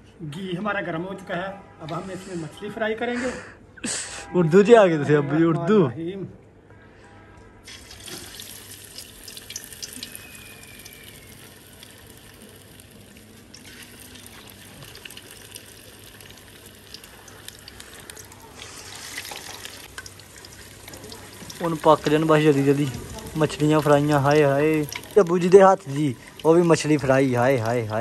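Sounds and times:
fish sizzling in hot oil: 7.7s - 28.0s.

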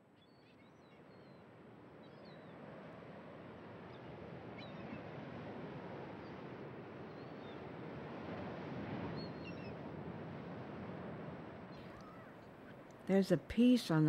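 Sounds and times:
waves on open water: 0.0s - 12.9s
faint bird chirps: 11.7s - 12.4s.

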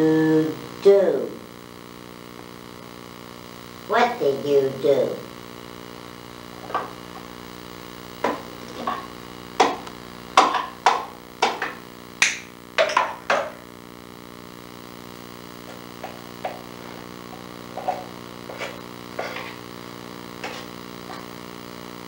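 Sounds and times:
parrot beak knocking on wood: 8.2s - 9.8s, 10.4s - 13.5s.

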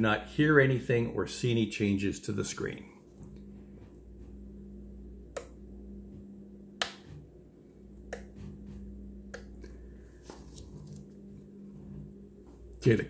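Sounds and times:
toggle switch clicks: 5.3s - 5.6s, 6.8s - 7.1s.

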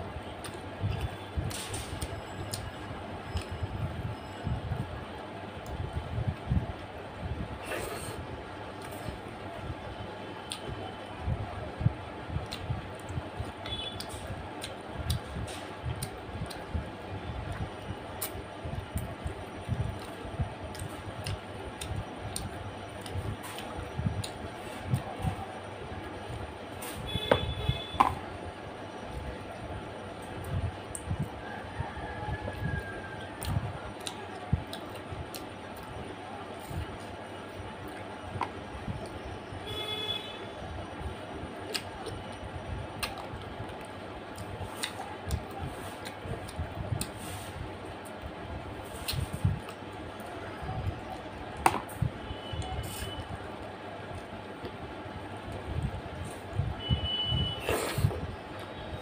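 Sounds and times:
mouth chewing clicks and smacks: 33.4s - 35.9s, 41.7s - 42.4s, 43.0s - 47.2s.

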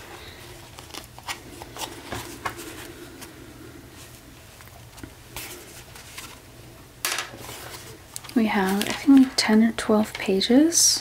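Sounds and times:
paper and string rustling: 0.0s - 6.5s, 7.2s - 9.5s.

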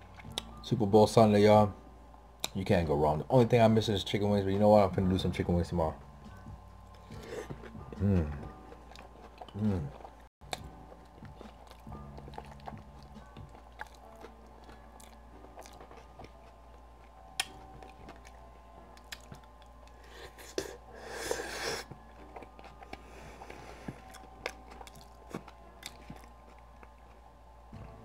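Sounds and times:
chewing and biting food: 6.9s - 20.8s, 21.8s - 28.0s.

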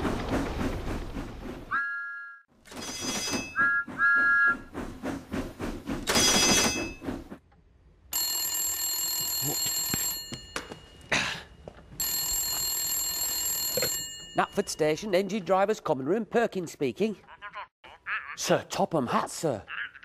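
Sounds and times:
telephone bell ringing: 2.7s - 3.6s, 8.1s - 11.1s, 12.0s - 14.6s.

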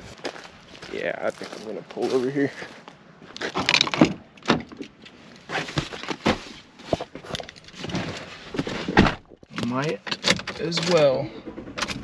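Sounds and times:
clicks and knocks in cab: 8.6s - 12.0s
truck door unlatched and opened: 8.9s - 11.0s.

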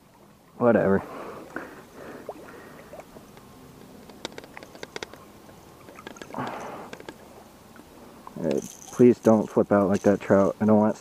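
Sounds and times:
fish splashing in shallow water: 0.1s - 10.6s.

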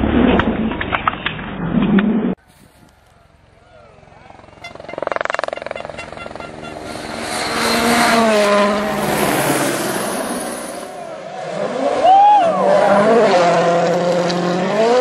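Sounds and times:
rally car engine revving: 4.0s - 15.0s.

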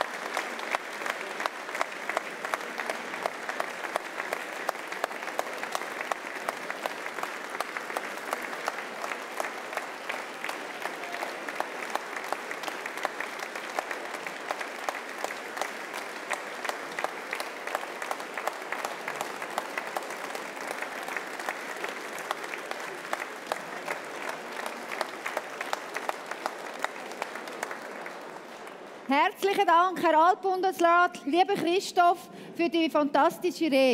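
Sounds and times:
audience applauding: 0.0s - 29.7s.

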